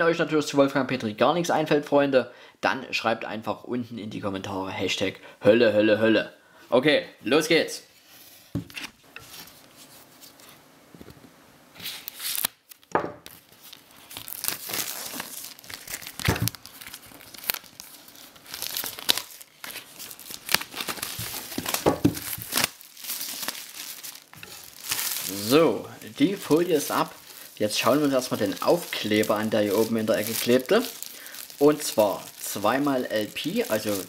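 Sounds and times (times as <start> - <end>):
plastic film crinkling and tearing: 11.8 - 34.0.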